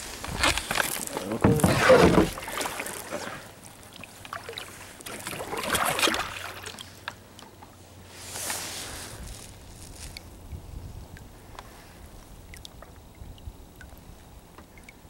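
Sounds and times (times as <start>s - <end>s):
paddle splashing in water: 0.0s - 9.0s
water drips: 12.4s - 15.0s.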